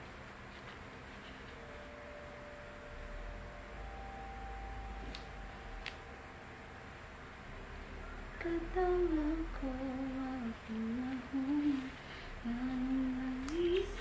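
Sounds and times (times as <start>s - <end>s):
woman humming: 8.4s - 14.0s.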